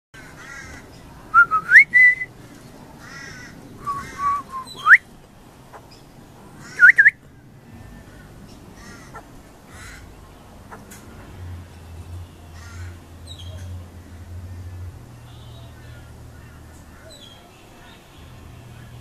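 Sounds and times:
bird whistled song: 0:01.3 - 0:02.3, 0:03.8 - 0:05.0, 0:06.7 - 0:07.2
soft rough bird calls: 0:02.4 - 0:05.0, 0:07.8 - 0:11.0.

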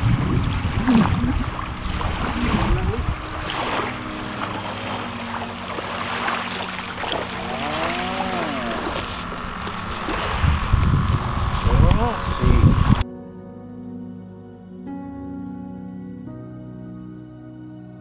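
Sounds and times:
wind buffeting microphone: 0:00.0 - 0:05.0, 0:07.2 - 0:13.0
small waves washing: 0:00.0 - 0:12.2
water splashing from net: 0:00.5 - 0:11.6.

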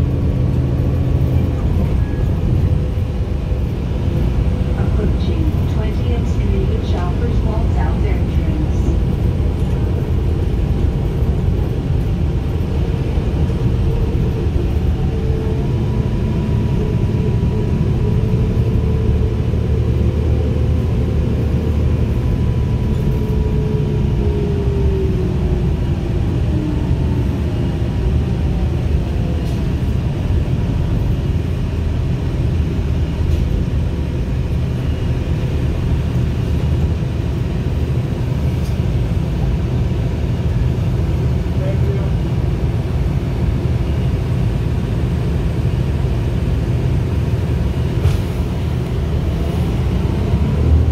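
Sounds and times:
bus engine and road rumble: 0:00.0 - 0:50.9.

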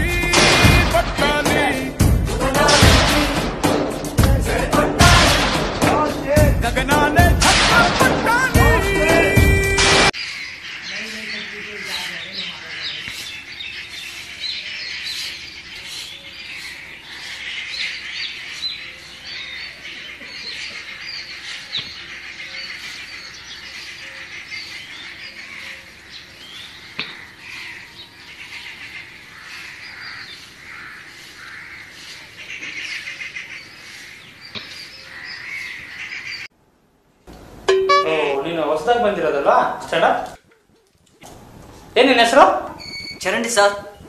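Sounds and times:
small birds chirping: 0:09.6 - 0:36.5, 0:38.1 - 0:44.0.

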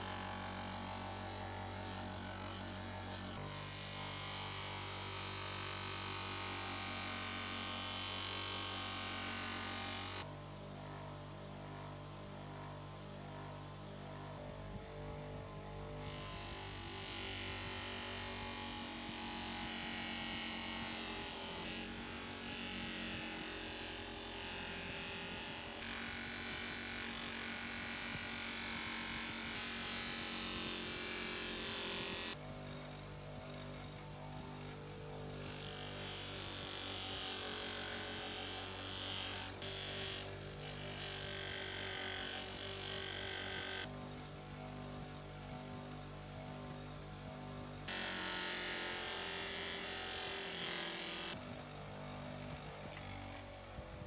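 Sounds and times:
bench grinder motor humming: 0:00.0 - 0:10.3, 0:47.4 - 0:53.9.

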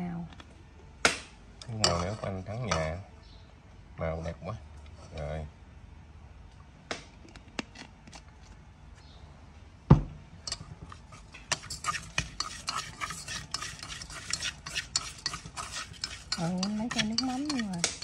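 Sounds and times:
utensil scraping a bowl: 0:10.5 - 0:18.0.

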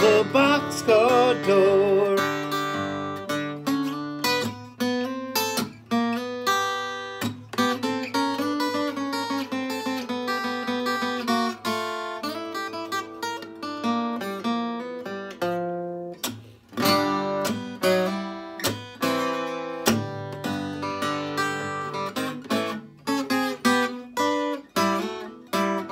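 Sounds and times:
acoustic guitar picking: 0:00.0 - 0:25.9.

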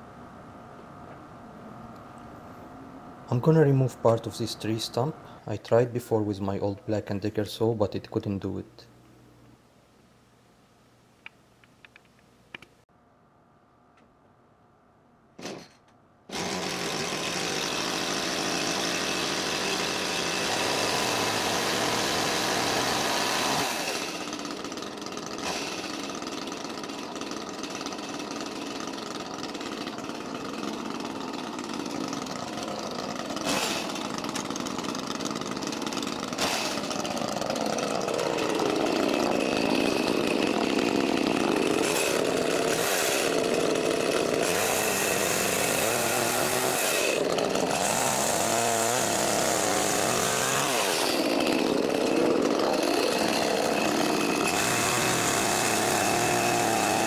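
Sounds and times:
chainsaw engine running: 0:16.3 - 0:57.0.

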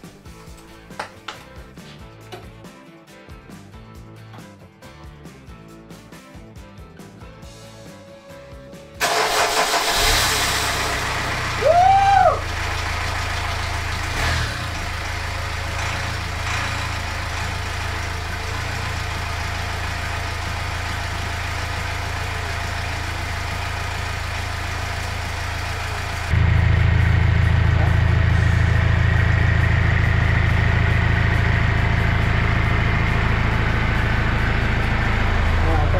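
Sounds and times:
diesel engine starting and idling: 0:09.0 - 0:35.9.

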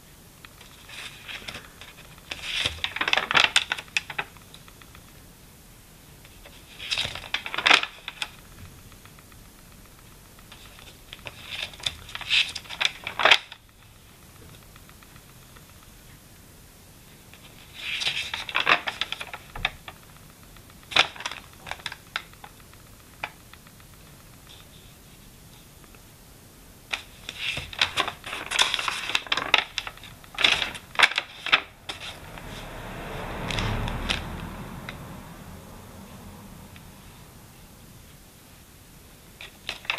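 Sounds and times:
notebook pages being turned: 0:00.6 - 0:04.7, 0:06.3 - 0:09.2, 0:10.4 - 0:13.6, 0:17.3 - 0:20.0, 0:26.9 - 0:32.7.

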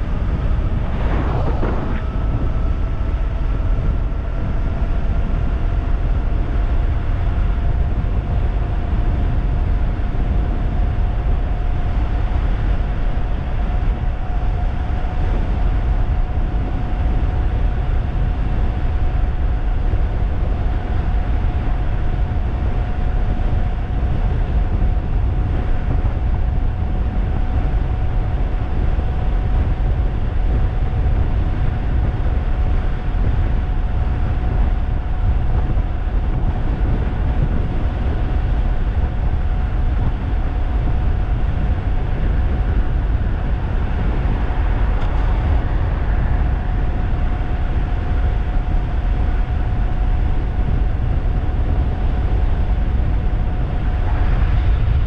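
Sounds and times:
electric motor whine: 0:00.0 - 0:04.8
wind rushing over microphone: 0:00.0 - 0:55.0.

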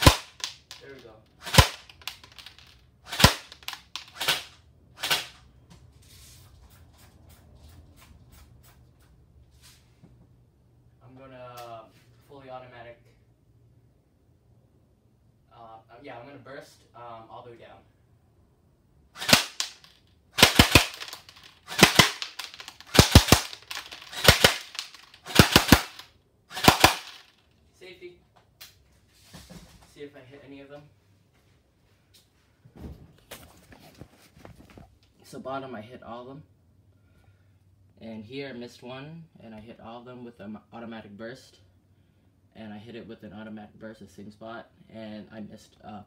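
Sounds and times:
airsoft gun shots: 0:00.0 - 0:00.5, 0:01.4 - 0:02.1, 0:03.1 - 0:05.4, 0:19.2 - 0:19.8, 0:20.4 - 0:27.2.

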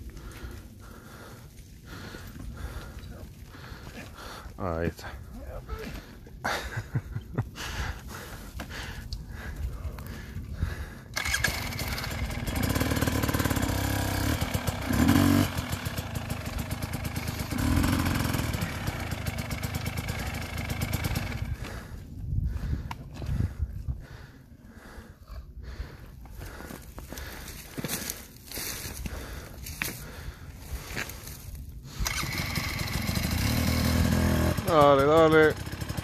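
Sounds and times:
dirt bike engine running: 0:10.6 - 0:25.0, 0:32.0 - 0:36.0.

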